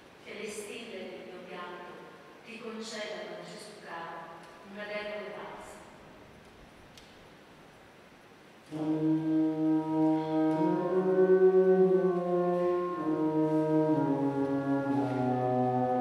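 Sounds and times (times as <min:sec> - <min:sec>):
wind ensemble playing chords: 0:08.7 - 0:16.0.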